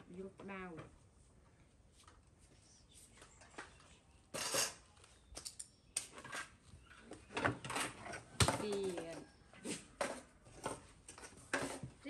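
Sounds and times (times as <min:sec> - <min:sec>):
dishes and cutlery clinking: 0:04.3 - 0:04.8.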